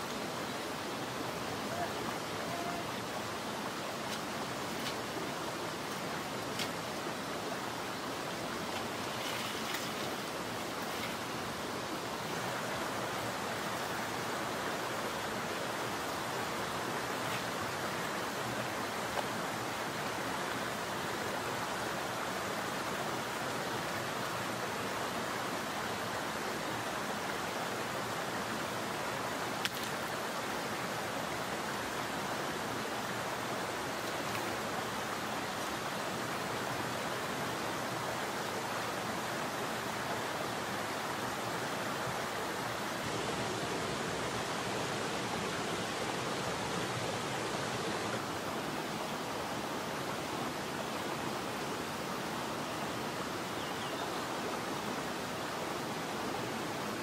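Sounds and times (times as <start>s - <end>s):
stream rushing over rocks: 0.0s - 57.0s
faint click: 29.6s - 30.0s.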